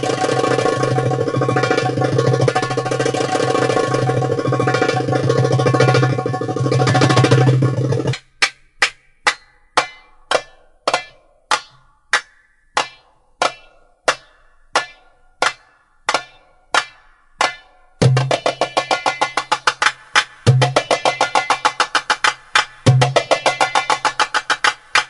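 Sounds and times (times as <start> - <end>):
drum-led dance music: 0.0 - 8.2, 18.0 - 25.0
ringing percussion strikes: 0.0 - 8.2.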